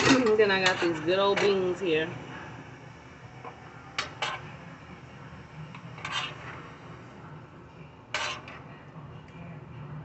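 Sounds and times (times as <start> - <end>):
kitchen utensils scraping: 0.0 - 2.0, 4.0 - 4.5, 5.8 - 6.6, 8.1 - 8.6
low steady hum: 0.0 - 10.0.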